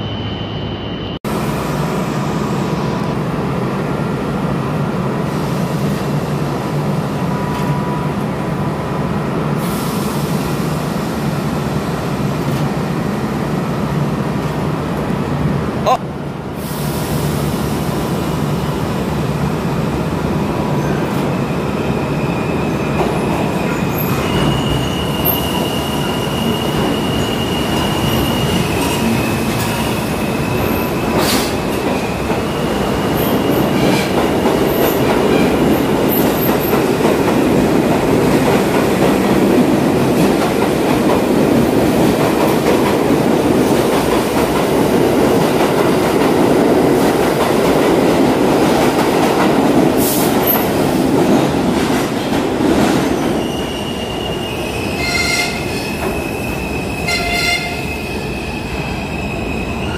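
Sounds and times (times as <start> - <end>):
train wheels rumbling on rail: 16.4 - 59.9
high wheel squeal: 20.8 - 31.4, 53.1 - 59.9.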